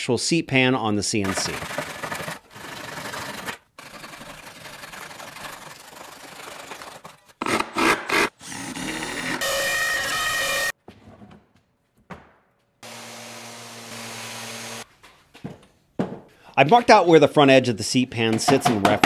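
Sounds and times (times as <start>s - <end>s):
hand saw rasping through wood: 1.4s - 9.0s
router spindle whine: 12.8s - 14.8s.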